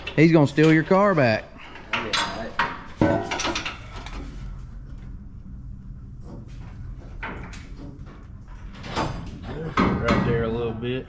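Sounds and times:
low steady hum: 0.1 - 11.0
metal exhaust pipe clanking: 1.8 - 4.4.

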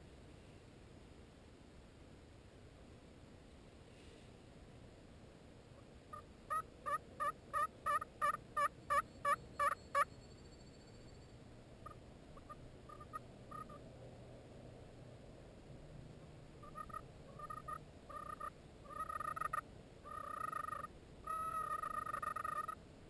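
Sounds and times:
turkey yelping: 6.1 - 10.1, 11.8 - 13.8, 16.6 - 22.8.

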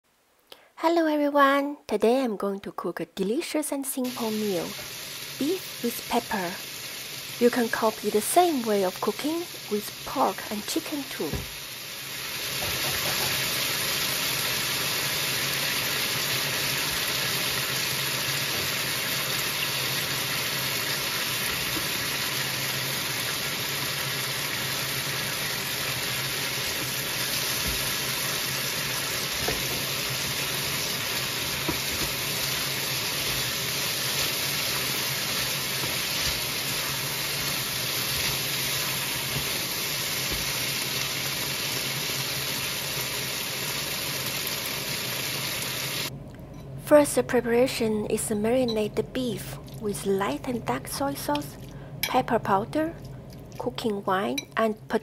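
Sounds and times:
food sizzling in a wok: 4.0 - 46.1
spatula knocking pan: 31.4 - 32.4.

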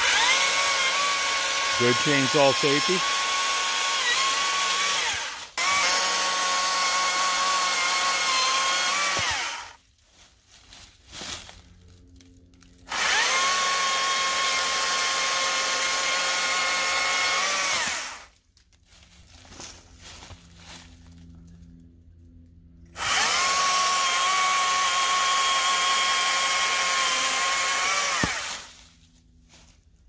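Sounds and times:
electric chainsaw cutting log: 0.0 - 9.8, 12.8 - 18.3, 22.9 - 28.9.

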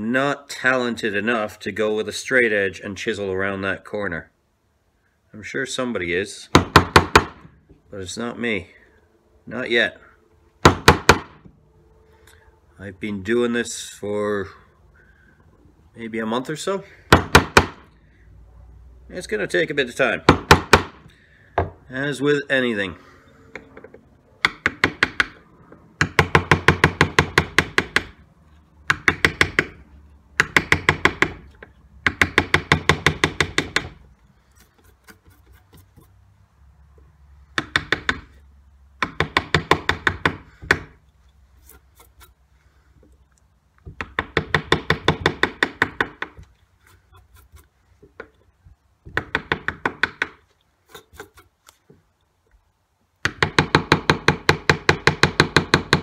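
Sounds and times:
carving gouge cutting wood: 32.1 - 36.2, 39.2 - 42.4, 44.0 - 47.8, 49.2 - 51.8.

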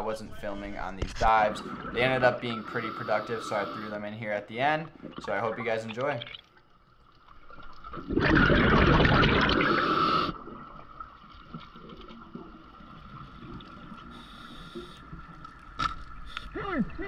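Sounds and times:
underwater hiss: 2.5 - 4.0, 9.5 - 10.4, 14.0 - 15.2
underwater rush of water: 7.4 - 17.0.

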